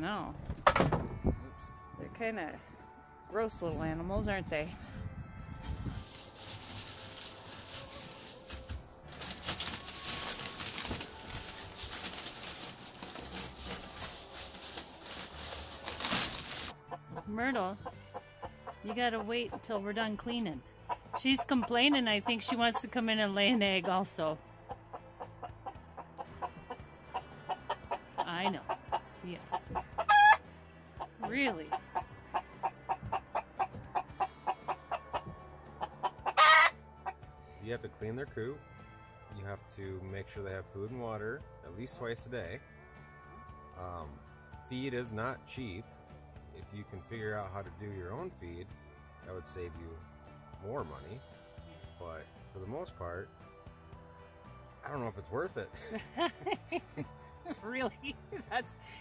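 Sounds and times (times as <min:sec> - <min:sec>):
dry shavings rustling: 0:05.9 - 0:16.8
plastic bag crinkling: 0:06.0 - 0:16.7
hen clucking: 0:09.6 - 0:30.4, 0:31.0 - 0:37.2
hen squawking: 0:30.0 - 0:30.4, 0:36.2 - 0:36.8.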